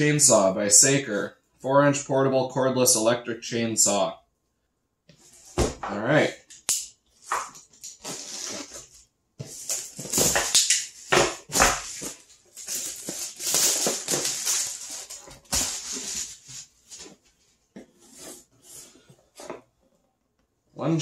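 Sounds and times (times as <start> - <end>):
cardboard scraping: 7.4 - 19.7
plastic bag crinkling: 11.8 - 16.4.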